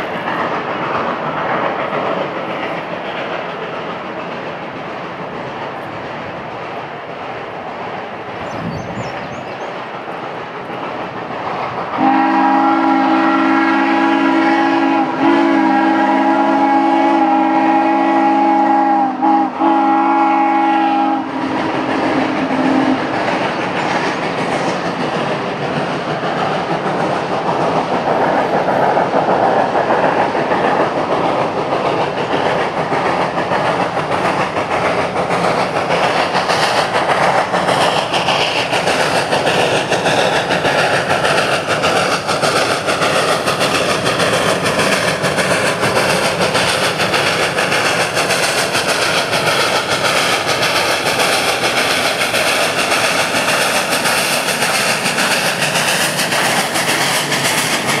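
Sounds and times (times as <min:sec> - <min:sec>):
steam locomotive running: 0:00.0 - 0:58.0
steam locomotive whistle: 0:12.0 - 0:23.0.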